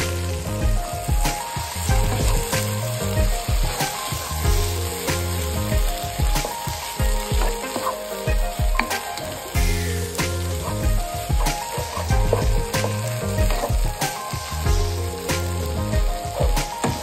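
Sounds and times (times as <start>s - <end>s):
background music: 0.0s - 17.0s
food sizzling in a pan: 0.0s - 17.0s.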